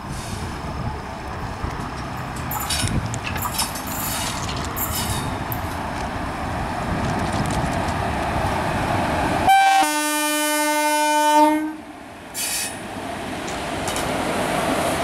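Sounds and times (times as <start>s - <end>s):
train wheels on rails: 0.0s - 9.9s, 12.0s - 15.0s
train horn: 9.5s - 11.8s.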